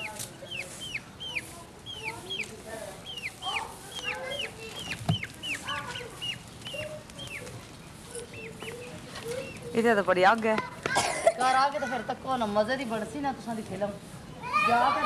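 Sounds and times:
high falling peeps: 0.0 - 9.9
chickens clucking: 0.0 - 15.0.

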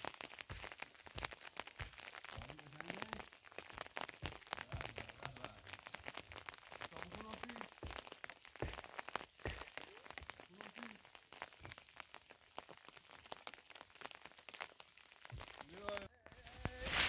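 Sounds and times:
footsteps crunching on stony path: 0.0 - 5.4, 6.0 - 12.0
faint voice: 9.8 - 11.0, 15.8 - 17.0.

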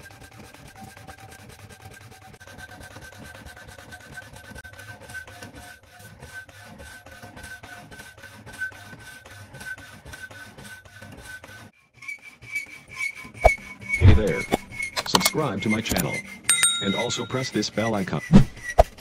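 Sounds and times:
steady high tone: 16.5 - 17.6.

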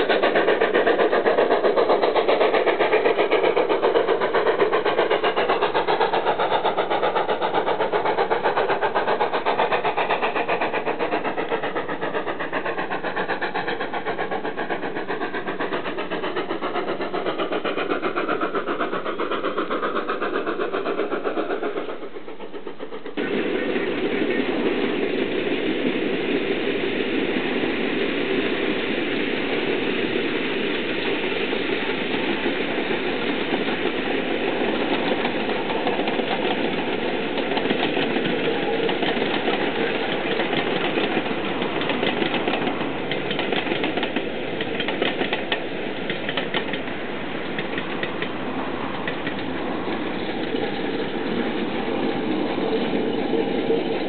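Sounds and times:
passenger train rumbling: 0.0 - 54.0
train wheels clattering: 0.0 - 54.0.

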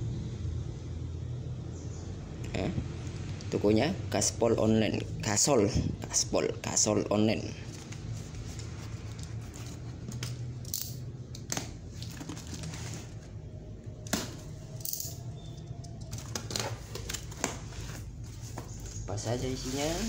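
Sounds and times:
steady low hum: 0.0 - 20.0
cardboard flaps and paper rustling: 7.6 - 10.5, 11.5 - 13.5, 16.1 - 20.0.

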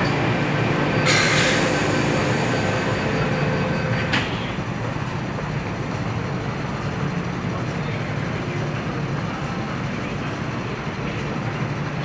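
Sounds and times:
train humming: 0.0 - 12.0
train doors shutting with a knock: 1.0 - 4.7.

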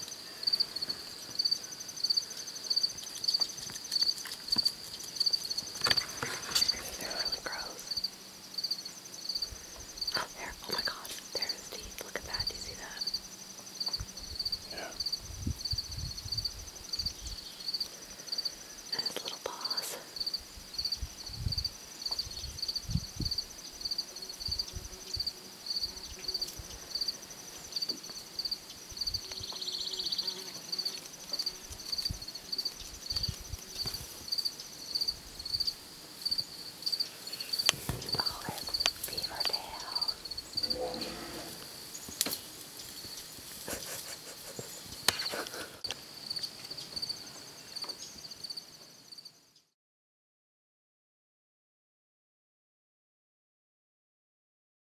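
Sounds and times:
higher insect call: 0.0 - 49.6
insects chirping: 0.0 - 49.6
low rustles and knocks: 37.7 - 39.2.

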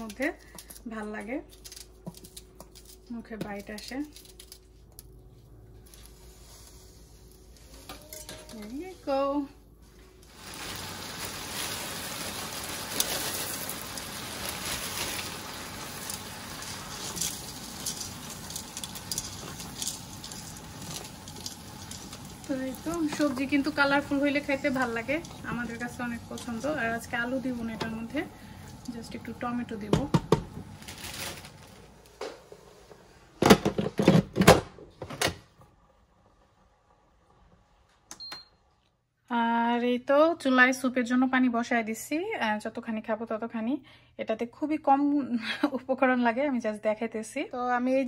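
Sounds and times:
vegetables sizzling in a pan: 5.9 - 32.0.

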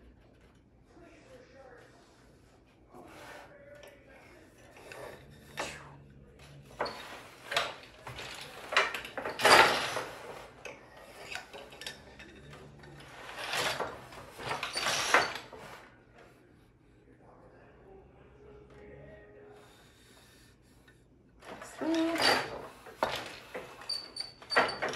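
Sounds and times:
loom treadles clunking: 6.7 - 15.8, 21.4 - 24.9
loom shuttle sliding: 6.7 - 15.9, 21.4 - 24.9.

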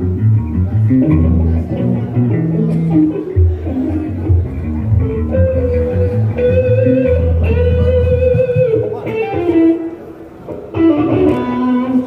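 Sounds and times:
deep bass line: 0.0 - 8.9
electric guitar lead notes: 0.0 - 12.0.

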